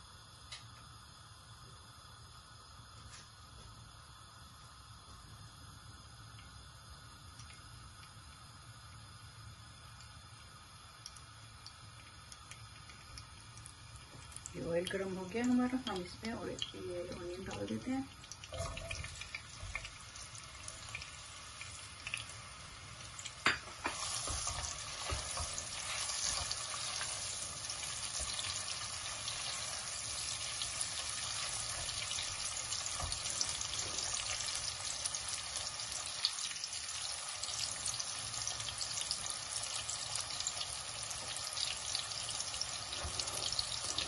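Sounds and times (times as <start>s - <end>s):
onions sizzling in hot oil: 0.0s - 44.0s
spatula stirring in pot: 23.7s - 34.5s.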